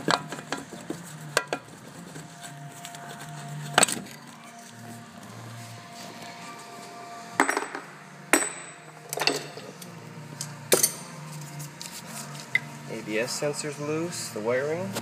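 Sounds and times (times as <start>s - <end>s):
sharp metal knocks ringing: 7.4s - 9.5s.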